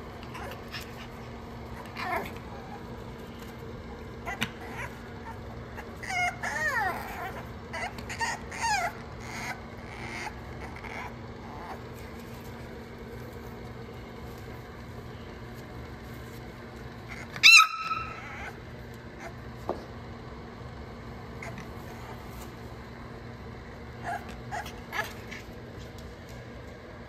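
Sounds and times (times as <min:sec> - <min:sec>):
steady low hum: 0:00.0 - 0:27.0
puppy whining and yipping: 0:00.2 - 0:02.9, 0:04.2 - 0:12.0, 0:17.1 - 0:19.4, 0:21.4 - 0:22.5, 0:24.0 - 0:25.6
puppy high squeal: 0:04.2 - 0:11.8, 0:17.1 - 0:18.6, 0:24.0 - 0:25.5.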